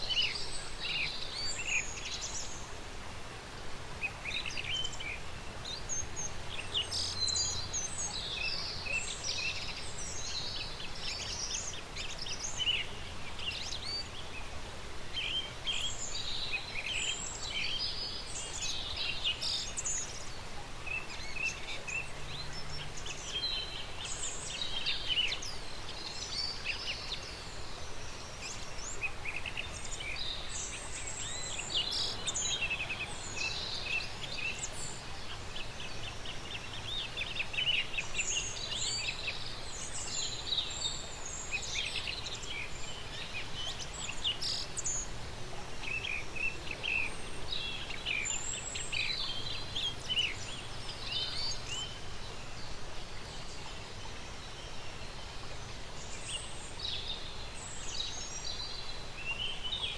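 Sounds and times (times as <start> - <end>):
background hiss: 0.0 - 59.9
birds chirping and singing: 45.8 - 51.8.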